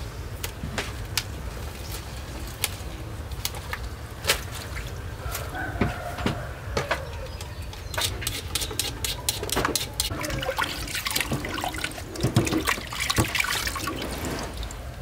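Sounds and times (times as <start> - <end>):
water splashing and trickling: 3.2 - 5.2, 9.6 - 15.0.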